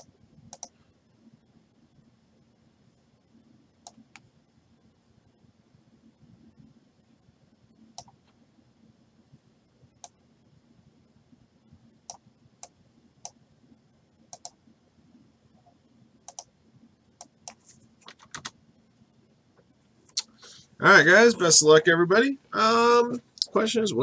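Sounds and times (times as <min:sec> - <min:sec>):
mouse and keyboard clicks: 0:00.0 - 0:00.7, 0:14.3 - 0:14.6, 0:16.3 - 0:16.5, 0:17.2 - 0:18.6
faint steady hum: 0:00.0 - 0:24.0.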